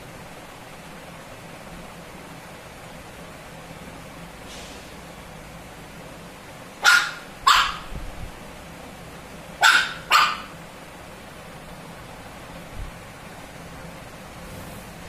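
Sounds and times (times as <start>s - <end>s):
puppy yapping: 6.8s - 7.9s, 9.6s - 10.6s.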